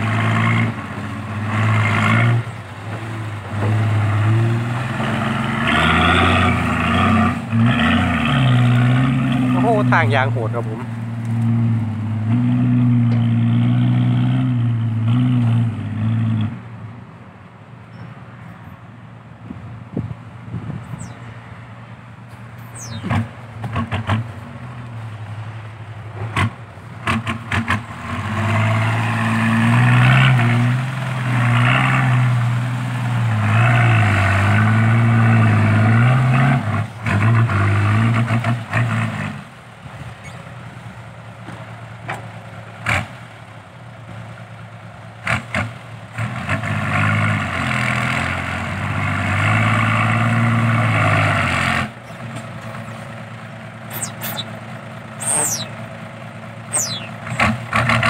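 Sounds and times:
diesel truck engine pulling hard: 0.0 - 16.7, 22.4 - 58.0.

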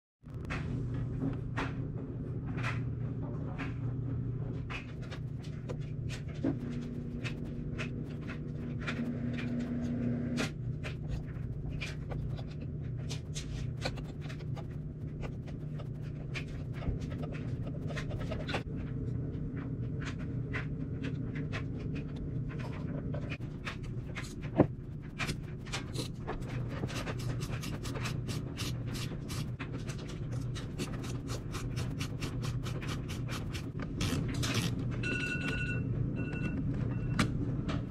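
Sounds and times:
steady low hum: 0.3 - 37.9.

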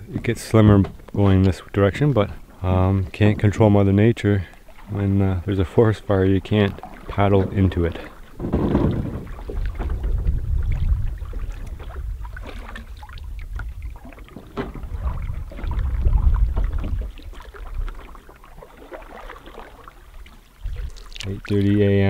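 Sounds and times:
canoe paddles dipping: 0.0 - 22.0
water lapping at shore: 0.0 - 22.0
wind rumble on microphone: 7.1 - 18.1, 20.6 - 22.0.

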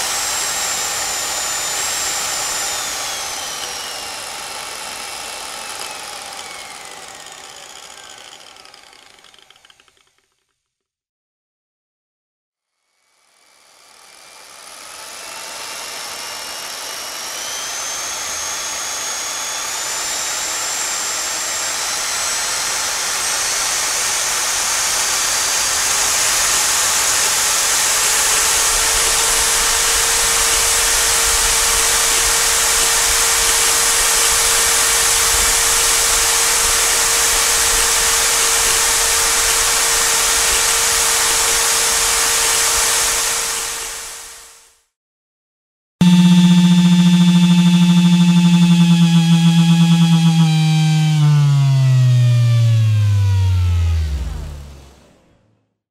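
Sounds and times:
power tool motor whining: 0.0 - 10.0, 13.9 - 44.2, 46.0 - 54.8.

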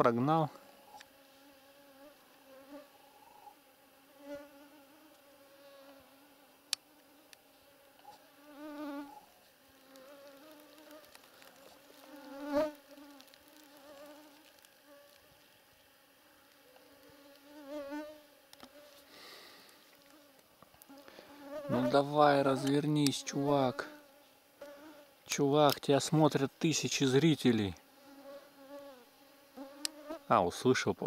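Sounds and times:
mosquitoes whining: 0.6 - 15.3.

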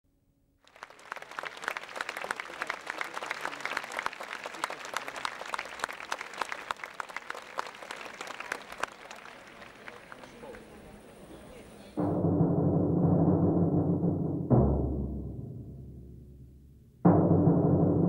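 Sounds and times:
audience applauding: 0.6 - 12.0.

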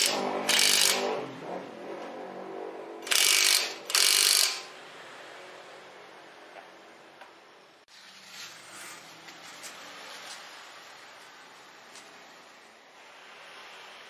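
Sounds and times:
impact wrench hammering: 0.0 - 1.2, 3.0 - 4.7.

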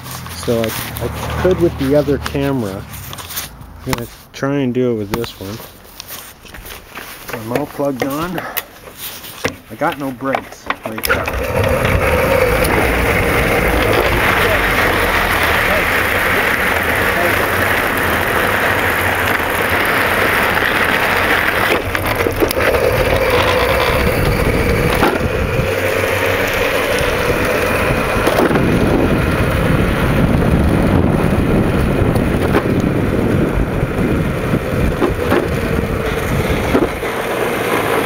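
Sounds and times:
tyres rumbling on asphalt: 0.0 - 38.0
electric motor whine: 11.0 - 38.0
knocks over bumps: 34.8 - 37.2.

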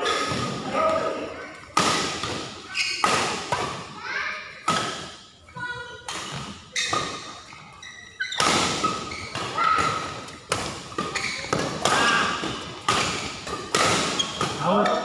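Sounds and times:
rackets hitting shuttlecock: 1.7 - 3.9, 8.2 - 15.0
shoes squeaking on court: 2.7 - 3.2, 4.8 - 15.0.

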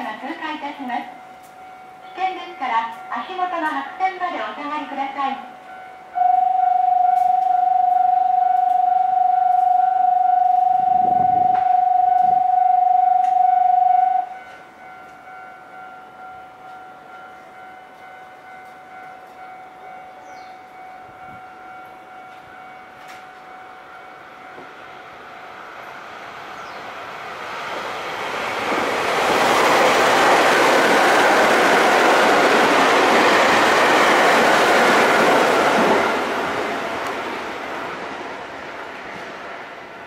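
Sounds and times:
electronic warning tone: 6.2 - 14.4.

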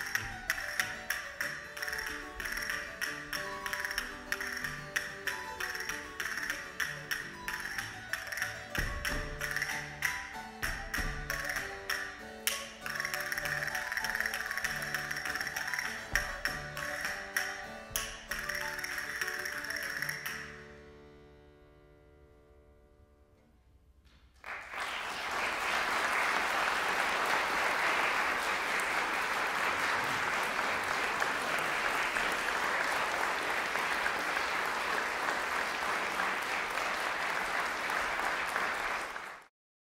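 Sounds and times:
audience applause: 24.4 - 39.5.

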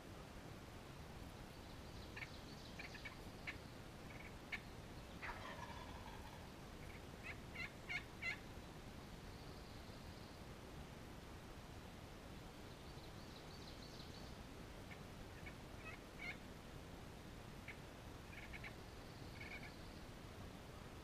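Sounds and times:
wild turkey clucking: 2.2 - 8.4, 14.8 - 16.4, 17.6 - 18.8, 19.4 - 19.8.

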